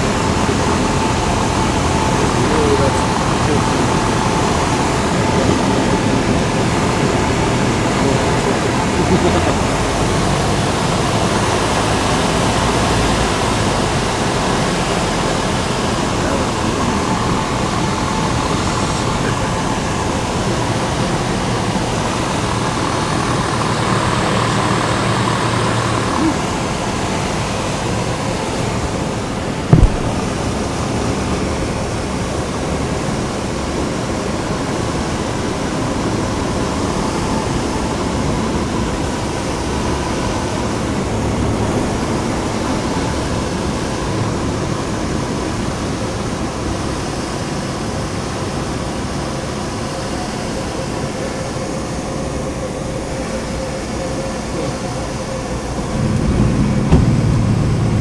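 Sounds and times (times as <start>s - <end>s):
light aircraft engine drone: 0.0s - 58.0s
brief thump: 29.7s - 30.4s, 56.8s - 57.6s.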